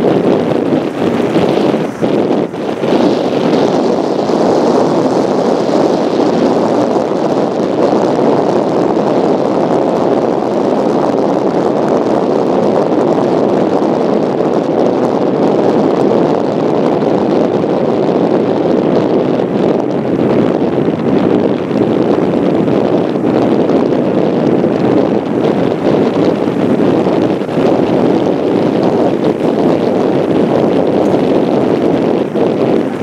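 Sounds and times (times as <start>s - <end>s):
wind buffeting microphone: 0.0s - 33.0s
tyre and road noise: 16.1s - 33.0s.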